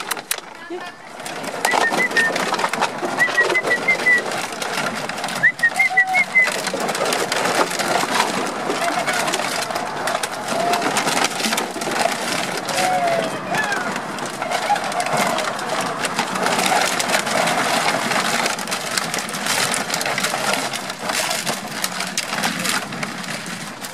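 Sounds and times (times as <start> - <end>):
plastic bottles crackling and crunching: 0.0 - 23.9
puppies chirping: 1.4 - 4.5.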